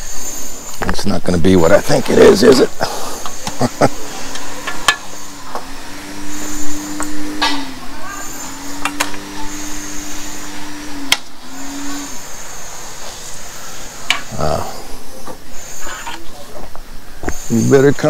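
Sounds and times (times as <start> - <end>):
motor running: 1.5 - 18.0
sharp clicks: 8.8 - 9.3.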